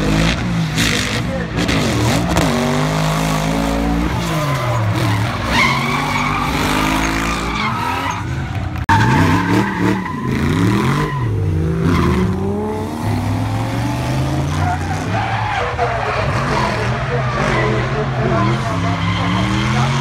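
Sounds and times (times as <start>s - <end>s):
car engines revving: 0.0s - 20.0s
tyres squealing: 3.2s - 12.4s.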